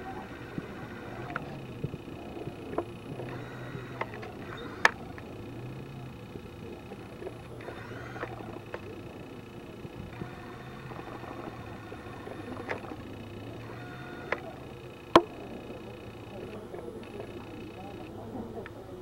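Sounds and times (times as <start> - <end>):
light clicks: 0.0 - 18.8
faint low hum: 0.0 - 19.0.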